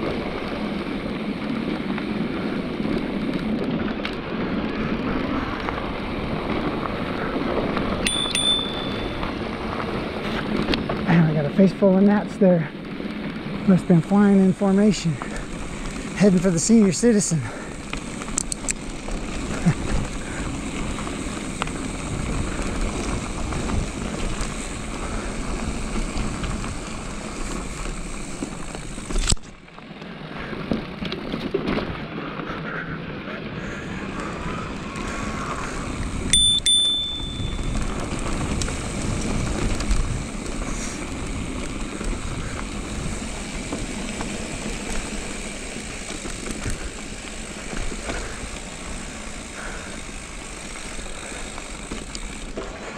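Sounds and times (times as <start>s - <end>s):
bike rattling: 0.0s - 52.9s
tyres rumbling over dirt: 0.0s - 52.9s
short bell ring: 8.1s - 9.2s, 36.4s - 37.7s.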